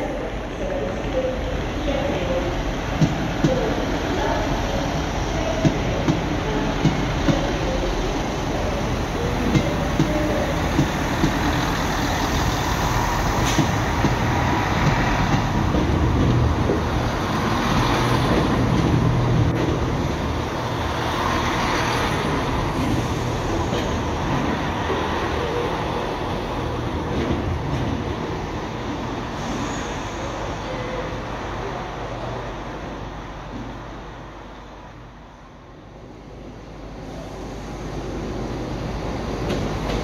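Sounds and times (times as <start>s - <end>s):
train engine rumble: 0.0s - 40.0s
train wheel noise: 0.0s - 40.0s.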